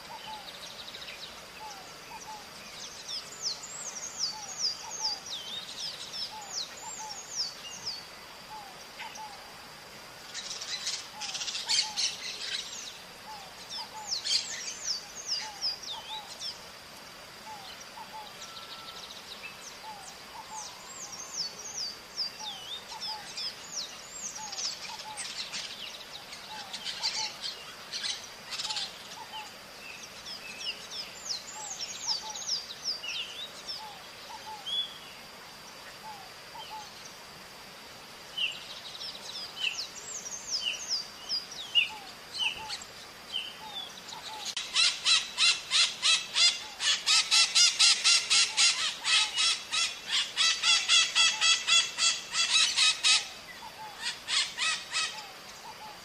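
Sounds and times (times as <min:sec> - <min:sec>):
parrots chirping: 0:44.3 - 0:53.3, 0:54.0 - 0:55.3.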